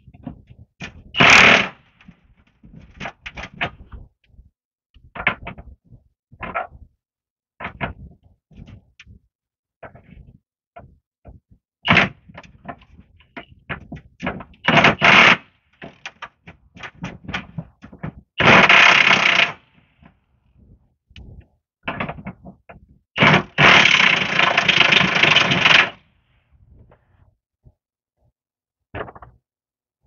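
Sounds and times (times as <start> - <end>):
impact wrench hammering: 23.2 - 26.0.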